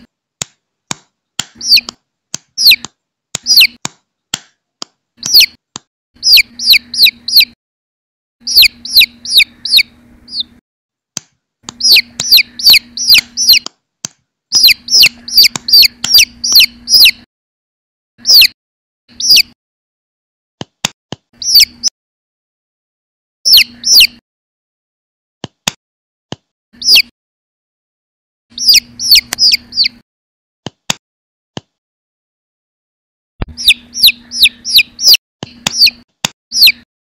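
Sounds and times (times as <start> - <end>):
sharp clicks: 0.4 - 7.4, 11.2 - 17.2, 33.4 - 36.8
chick peeping: 1.5 - 2.0, 2.6 - 3.8, 5.2 - 5.6, 6.2 - 7.6, 8.4 - 10.6, 11.7 - 13.7, 14.5 - 17.3, 18.2 - 19.6, 21.4 - 21.9, 23.5 - 24.2, 26.8 - 27.1, 28.5 - 30.0, 33.4 - 36.9.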